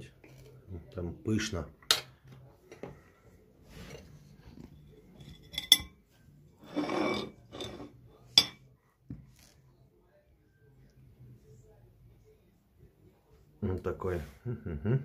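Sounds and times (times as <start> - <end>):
cake server scraping plate: 6.6 - 8.0.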